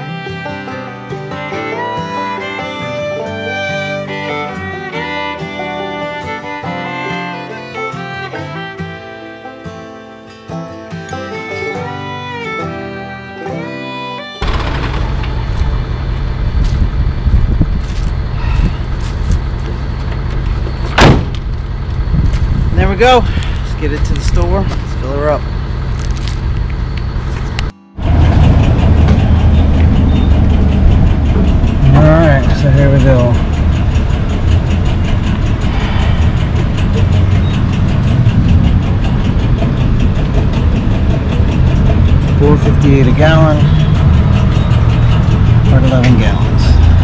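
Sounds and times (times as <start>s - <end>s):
truck engine idling: 11.4s - 47.0s
fuel pump rumbling: 14.4s - 47.0s
footsteps crunching on dry leaves: 17.8s - 20.1s.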